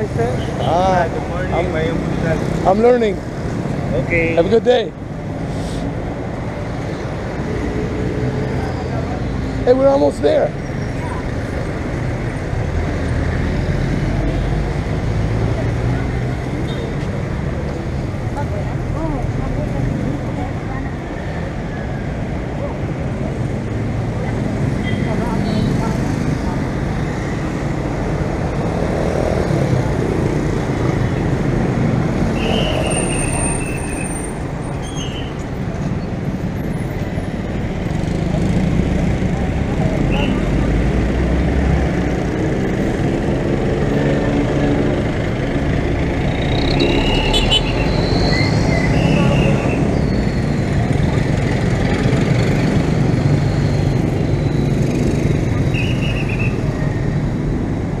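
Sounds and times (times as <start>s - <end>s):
tyres hissing: 5.4s - 5.9s
motorcycle engines droning: 37.2s - 58.0s.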